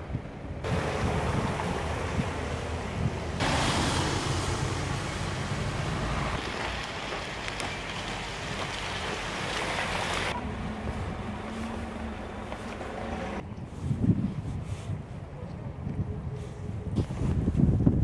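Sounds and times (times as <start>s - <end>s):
low engine rumble: 0.0s - 14.1s.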